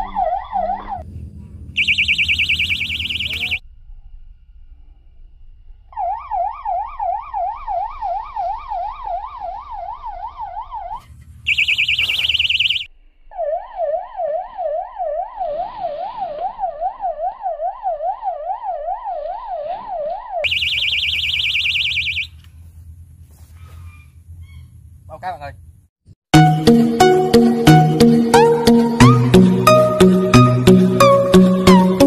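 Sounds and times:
fish-bite alarm wailing: 0:00.0 - 0:01.0, 0:01.8 - 0:03.6, 0:05.9 - 0:22.3
shrill warbling beep: 0:00.0 - 0:01.0, 0:01.8 - 0:03.6, 0:05.9 - 0:22.3.

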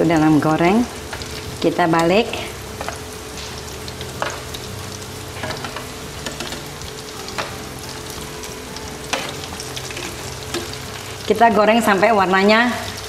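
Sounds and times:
food sizzling in hot oil: 0:00.0 - 0:13.0
metal tongs clicking on pan: 0:04.2 - 0:04.5, 0:05.4 - 0:06.7, 0:09.1 - 0:10.8.

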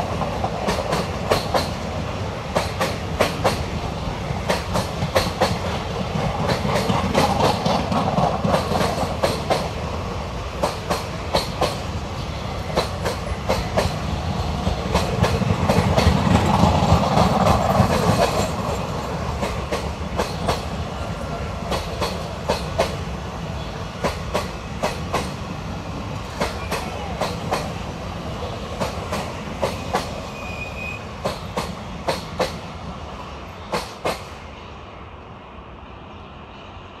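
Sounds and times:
train wheels clacking on rail joints: 0:00.0 - 0:09.9, 0:10.6 - 0:11.9, 0:12.6 - 0:23.1, 0:23.9 - 0:25.5, 0:26.2 - 0:27.8, 0:28.6 - 0:30.4, 0:31.2 - 0:32.7, 0:33.6 - 0:34.4
train rumble: 0:00.0 - 0:37.0.

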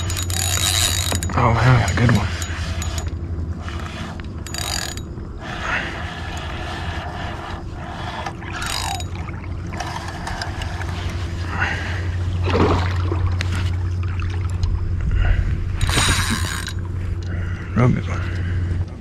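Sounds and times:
reel clicks: 0:00.0 - 0:05.5, 0:06.1 - 0:11.4, 0:15.8 - 0:17.4
fishing reel humming: 0:00.0 - 0:15.0, 0:15.6 - 0:18.6
water around kayak: 0:00.0 - 0:19.0.

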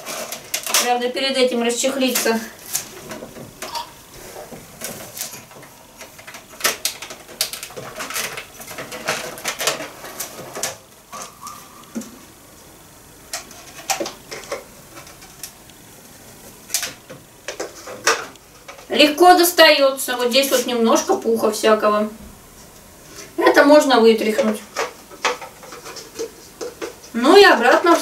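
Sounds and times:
plastic clicks and rattles: 0:04.8 - 0:11.3, 0:24.4 - 0:27.2.

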